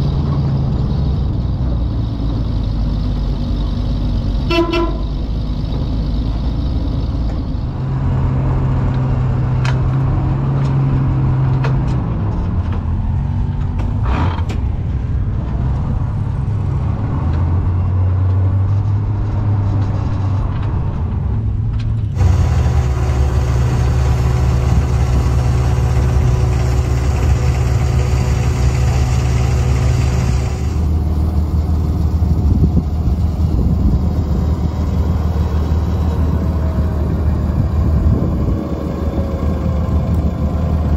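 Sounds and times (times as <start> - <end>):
truck engine running: 0.0 - 40.9
wind noise: 30.0 - 40.9.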